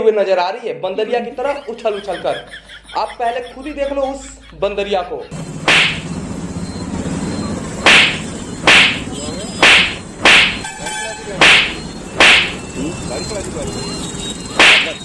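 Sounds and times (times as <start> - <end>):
street traffic noise: 1.2 - 15.0
sharp whip swishes: 5.7 - 6.0, 7.8 - 10.6, 11.4 - 12.6, 14.6 - 15.0.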